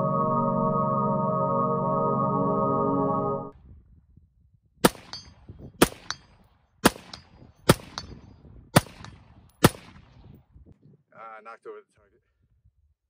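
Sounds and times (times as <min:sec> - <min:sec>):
gunshots: 0:04.8 - 0:06.2, 0:06.8 - 0:08.1, 0:08.8 - 0:10.2
bullet ringing on steel target: 0:05.1 - 0:06.5.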